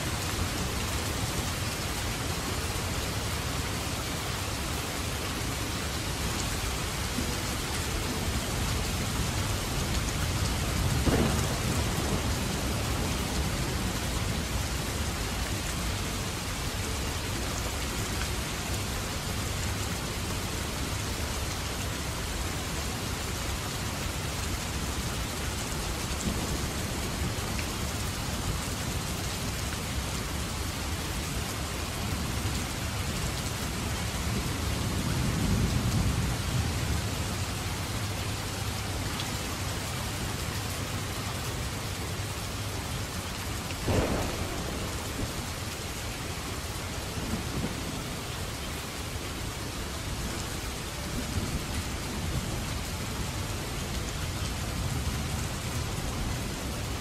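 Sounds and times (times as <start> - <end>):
heavy rain: 0.0 - 57.0
thunder rumble: 7.1 - 15.7, 43.8 - 48.5.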